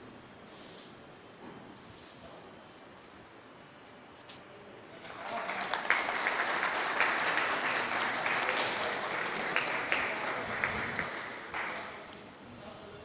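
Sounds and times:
audience clapping: 0:05.0 - 0:12.2.

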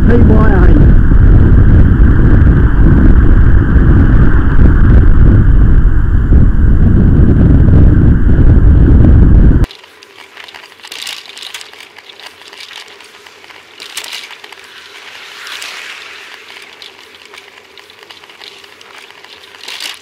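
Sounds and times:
loud wind on microphone: 0:00.0 - 0:09.7, 0:10.4 - 0:20.0
crackling rattle and hiss: 0:09.6 - 0:20.0
car passing with tyre hiss: 0:13.1 - 0:20.0.

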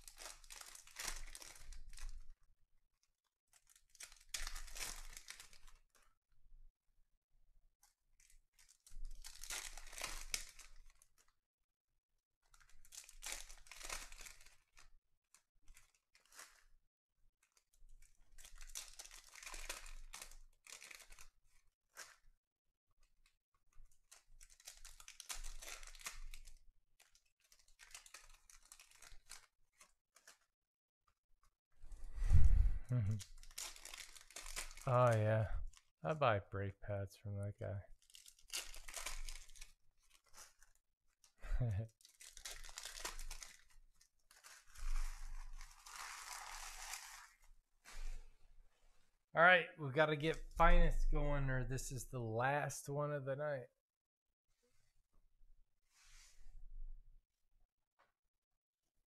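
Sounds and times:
foil wrappers tearing and crinkling: 0:00.0 - 0:02.2, 0:03.5 - 0:06.0, 0:08.6 - 0:11.3, 0:12.5 - 0:14.9, 0:15.7 - 0:16.7, 0:17.5 - 0:22.3, 0:24.0 - 0:30.5, 0:33.2 - 0:35.9, 0:38.0 - 0:40.8, 0:42.0 - 0:48.2.

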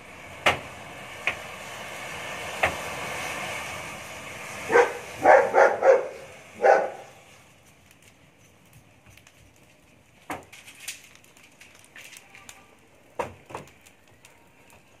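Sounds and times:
sharp pops of burning matches: 0:00.4 - 0:03.5, 0:06.1 - 0:15.0
matchsticks crackling: 0:07.6 - 0:12.9.

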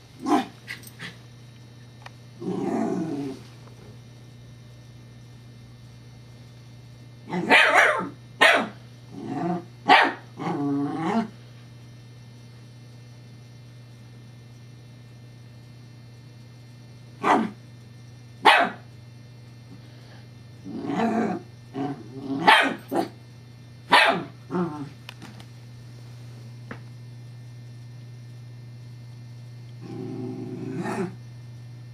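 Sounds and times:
puppy barking: 0:07.3 - 0:08.8, 0:09.9 - 0:10.3, 0:17.2 - 0:17.6, 0:18.4 - 0:18.8, 0:22.4 - 0:23.1, 0:23.9 - 0:24.4.

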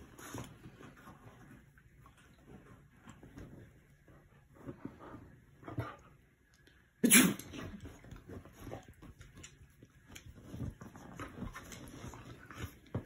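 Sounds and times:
movement on sofa: 0:07.7 - 0:13.0.

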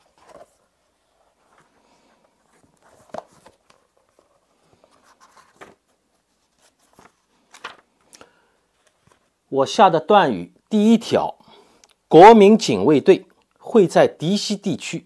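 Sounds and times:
book pages rustling: 0:00.0 - 0:08.1, 0:08.7 - 0:09.4.

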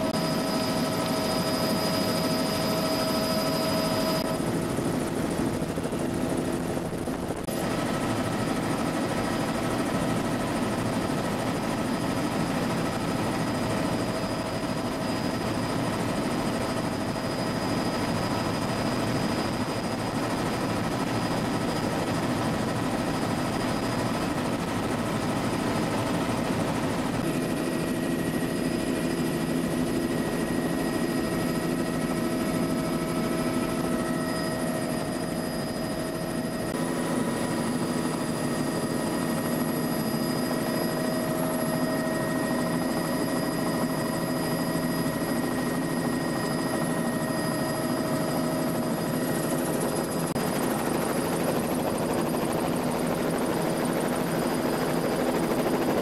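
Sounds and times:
helicopter turbine and rotors: 0:00.0 - 0:56.0.

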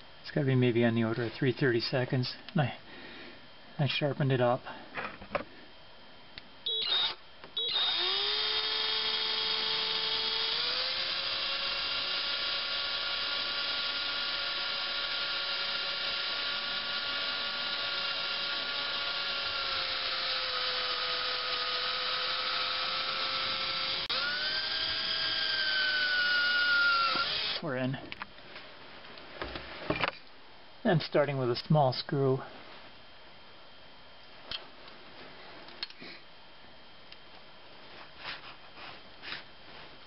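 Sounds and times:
electric drill whining: 0:06.6 - 0:27.6
drill trigger taps: 0:23.6 - 0:27.6.

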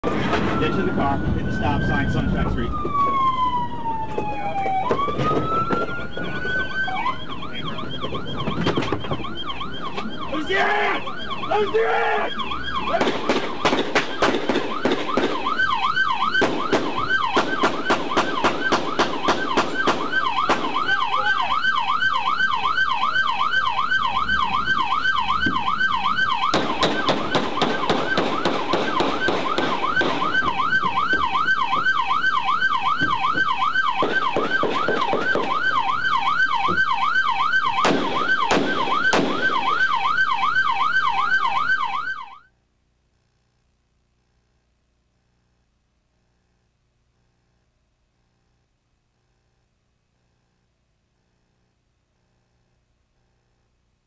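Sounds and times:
police siren yelping: 0:00.0 - 0:42.5.

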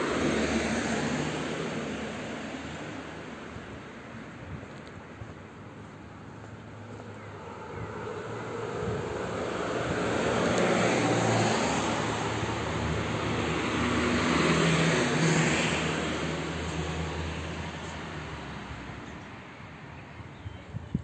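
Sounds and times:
vehicles passing: 0:00.0 - 0:21.0.

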